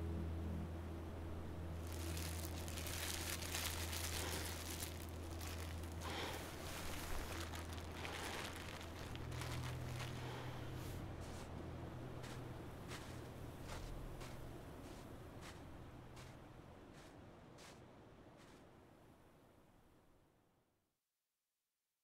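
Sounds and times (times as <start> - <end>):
steady low drone: 0.0 - 16.6
rustling and crunching: 1.8 - 11.5, 12.2 - 15.6.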